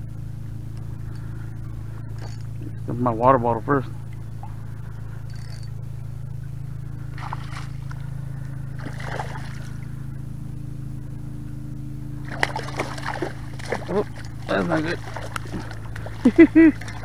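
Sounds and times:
steady low hum: 0:00.0 - 0:17.0
fish splashing at water surface: 0:07.1 - 0:08.0, 0:08.8 - 0:09.8, 0:12.2 - 0:17.0.

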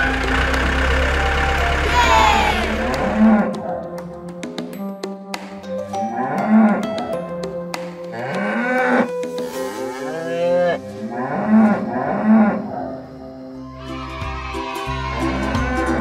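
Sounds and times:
light background music: 0:00.0 - 0:16.0
cows mooing: 0:01.8 - 0:03.6, 0:06.1 - 0:06.8, 0:08.1 - 0:13.7.

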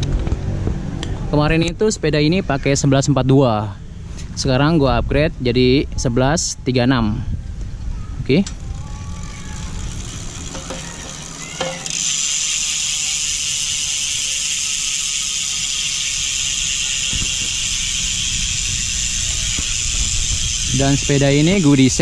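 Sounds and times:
bike freehub buzzing: 0:07.4 - 0:22.0.

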